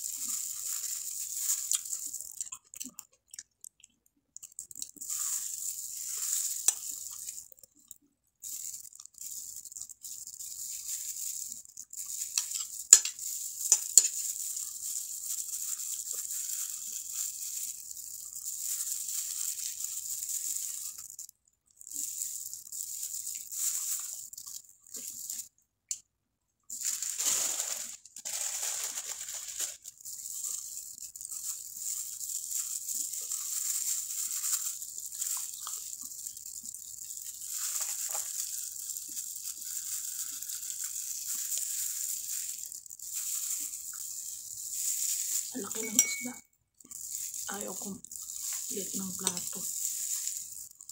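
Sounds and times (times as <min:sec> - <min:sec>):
plastic glove crinkling: 0:00.0 - 0:03.8, 0:04.4 - 0:25.5, 0:26.7 - 0:50.9
crisp fish skin crackling: 0:00.2 - 0:08.0, 0:08.7 - 0:21.3, 0:26.8 - 0:45.9.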